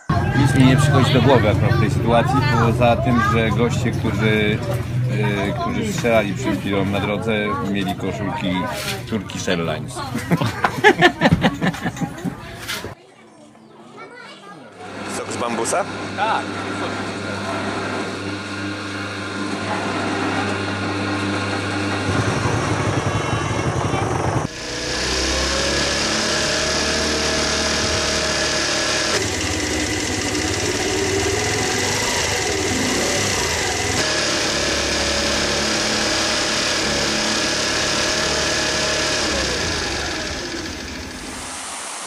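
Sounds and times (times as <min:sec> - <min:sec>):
moped engine running: 0:00.0 - 0:12.8, 0:14.8 - 0:41.5
hand-cranked juice press rattling: 0:24.2 - 0:41.2.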